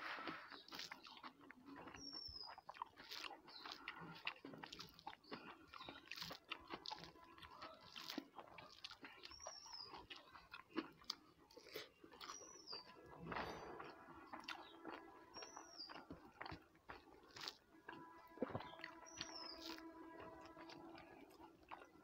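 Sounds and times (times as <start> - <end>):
person chewing and lip-smacking: 0.0 - 22.0.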